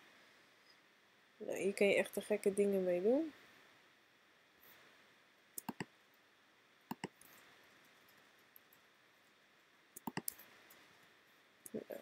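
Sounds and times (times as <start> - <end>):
computer mouse clicking: 5.6 - 5.9, 6.9 - 7.3, 10.0 - 10.8.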